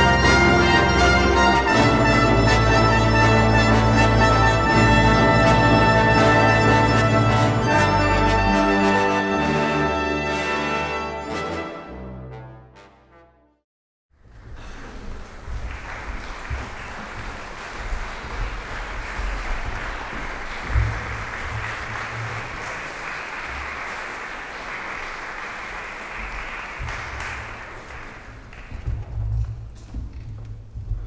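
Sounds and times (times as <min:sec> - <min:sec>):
audience applauding: 0:14.6 - 0:29.2.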